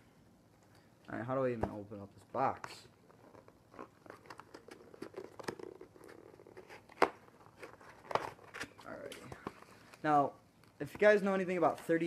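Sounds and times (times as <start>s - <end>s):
packing tape crinkling: 3.1s - 8.8s.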